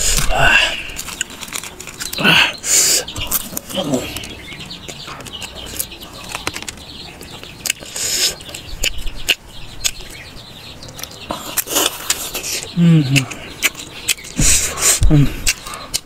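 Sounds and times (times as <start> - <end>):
fried bread crackling: 0.0 - 10.3.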